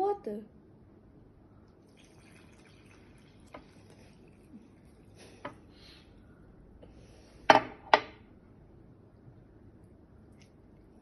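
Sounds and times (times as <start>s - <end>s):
water trickling into batter: 1.6s - 5.4s.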